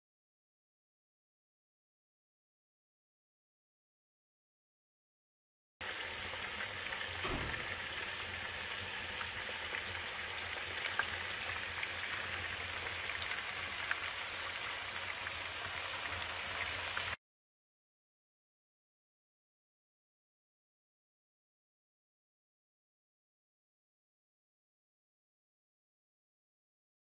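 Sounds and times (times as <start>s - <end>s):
wood fire hissing: 5.8s - 17.2s
fire crackles and pops: 9.8s - 14.1s.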